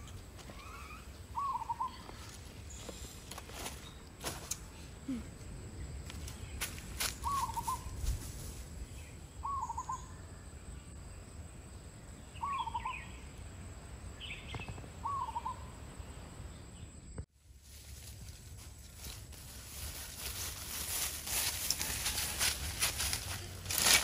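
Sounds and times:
bird call: 0:00.0 - 0:03.0, 0:07.1 - 0:08.0, 0:09.4 - 0:10.3, 0:12.4 - 0:13.2, 0:14.3 - 0:15.7
high bird chirps: 0:00.0 - 0:03.0, 0:06.3 - 0:08.0, 0:09.4 - 0:10.2
bare feet crunching dry leaves: 0:01.7 - 0:04.7, 0:06.0 - 0:08.9, 0:17.4 - 0:24.0.

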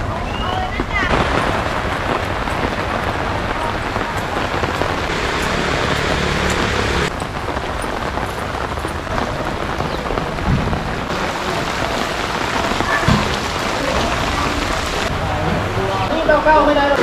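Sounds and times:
heavy rain on wet pavement: 0:00.0 - 0:17.0
low thumps: 0:00.8 - 0:11.1.

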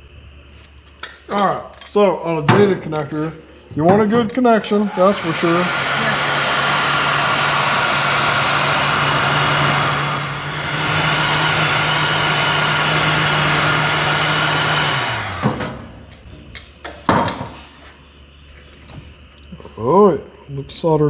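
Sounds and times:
heat gun blowing: 0:04.7 - 0:15.6.

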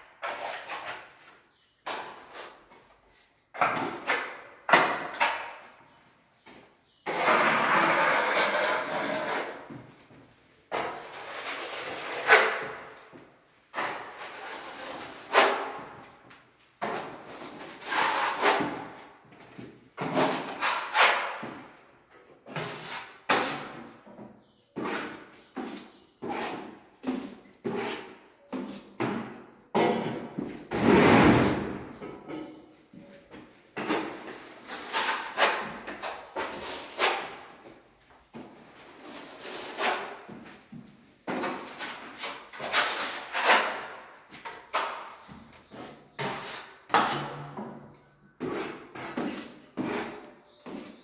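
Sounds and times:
steel trowel scraping filler on wall: 0:00.2 - 0:01.4, 0:07.1 - 0:09.7, 0:10.8 - 0:12.9, 0:13.8 - 0:16.0, 0:17.1 - 0:19.0, 0:20.1 - 0:21.7, 0:24.8 - 0:29.0, 0:33.8 - 0:37.6, 0:38.9 - 0:40.3, 0:41.3 - 0:47.6, 0:48.4 - 0:51.0.

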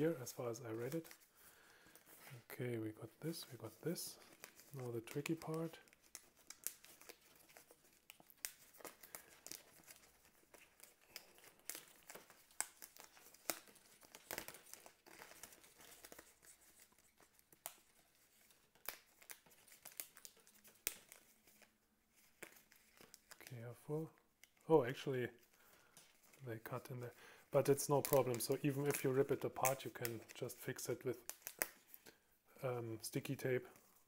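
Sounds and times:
stiff paper crinkling: 0:00.0 - 0:32.1.

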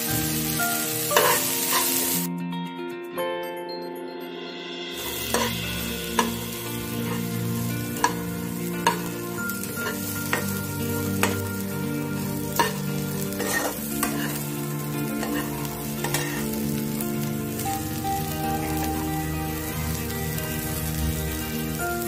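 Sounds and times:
food sizzling in a pan: 0:00.0 - 0:02.3, 0:04.9 - 0:22.0
spoon clinking against pan: 0:11.2 - 0:11.4, 0:12.6 - 0:12.8, 0:13.4 - 0:14.4.

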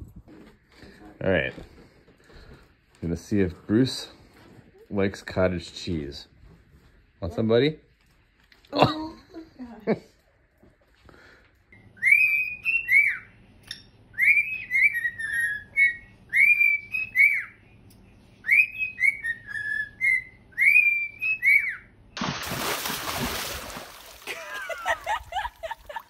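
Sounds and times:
cockatiel whistling a tune: 0:12.0 - 0:17.6, 0:18.4 - 0:21.9
loud splashing water: 0:22.2 - 0:26.0.

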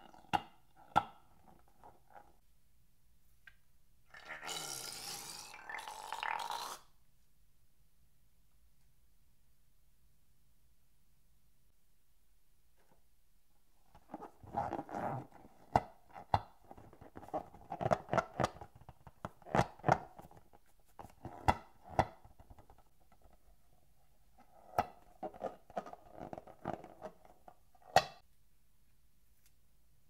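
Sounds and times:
rubbery balloon squeaks: 0:14.2 - 0:15.6.

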